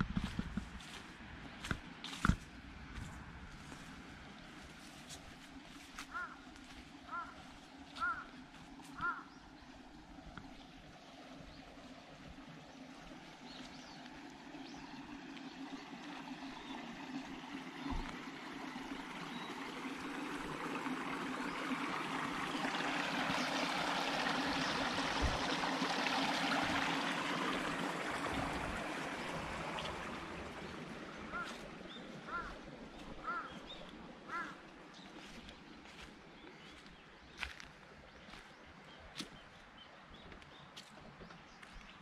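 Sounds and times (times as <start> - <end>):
running water: 0.0 - 42.0
duck quacking: 6.1 - 6.4, 7.1 - 7.4, 8.0 - 8.3, 9.0 - 9.3, 32.3 - 32.6, 34.3 - 34.6.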